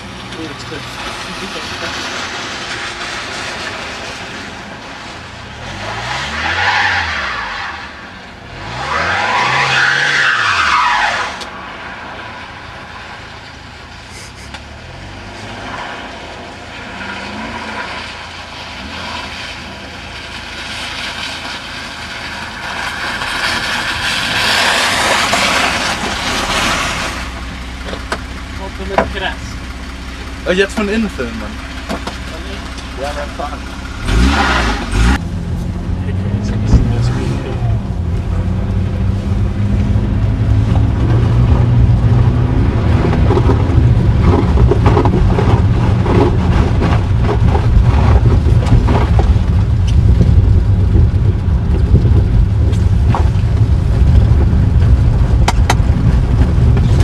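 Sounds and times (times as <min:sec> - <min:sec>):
car engine revving: 0:00.0 - 0:57.0
tyre noise: 0:22.2 - 0:57.0.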